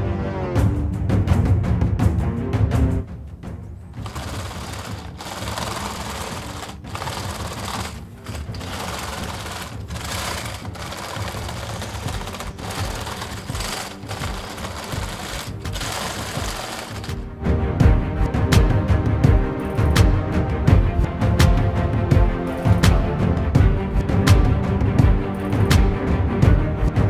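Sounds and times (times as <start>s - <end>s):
plastic tracks clattering on tabletop: 4.0s - 17.2s.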